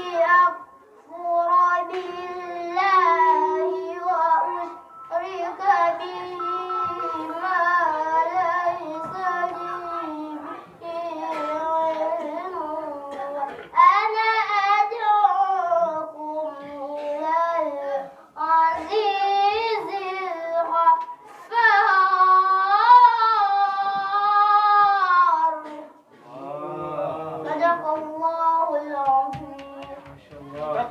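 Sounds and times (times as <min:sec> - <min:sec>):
boy reciting melodically: 0:00.0 - 0:30.9.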